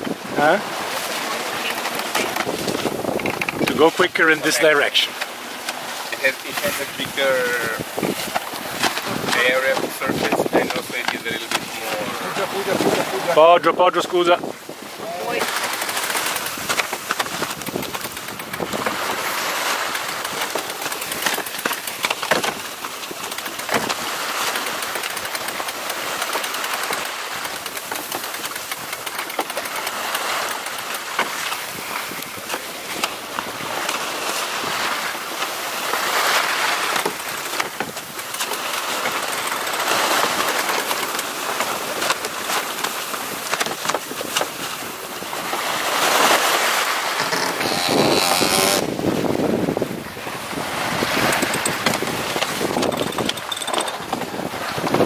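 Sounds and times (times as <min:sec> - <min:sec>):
wind noise on microphone: 0:00.0 - 0:00.8, 0:01.5 - 0:04.8, 0:06.2 - 0:21.5, 0:31.2 - 0:35.4, 0:41.8 - 0:55.0
water rushing along a hull: 0:00.0 - 0:55.0
sharp ticks: 0:15.4 - 0:19.0, 0:24.5 - 0:31.6, 0:51.2 - 0:54.0.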